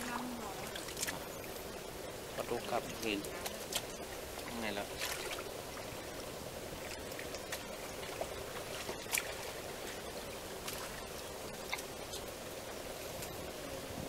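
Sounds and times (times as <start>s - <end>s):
water trickling: 0.0s - 12.6s.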